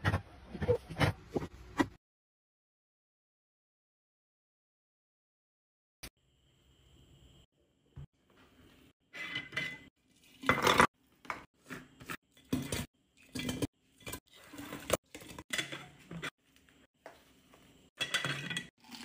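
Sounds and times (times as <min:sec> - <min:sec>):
glass and plastic clinking: 0:18.0 - 0:19.0.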